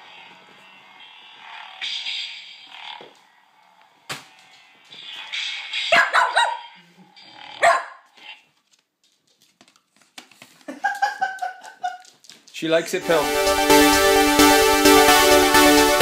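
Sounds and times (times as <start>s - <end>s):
dog barking: 5.9s - 6.8s, 7.6s - 8.1s.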